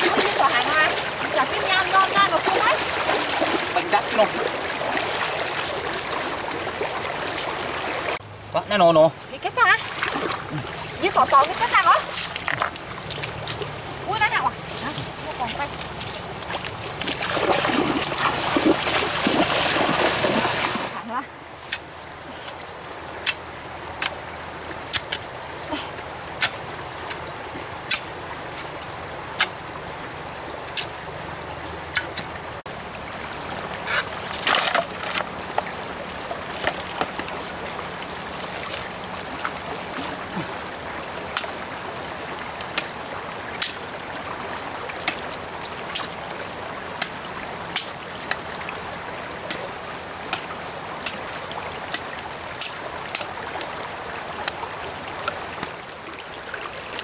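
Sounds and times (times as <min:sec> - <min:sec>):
digging pole striking earth: 0:43.6 - 0:43.8, 0:47.0 - 0:48.4.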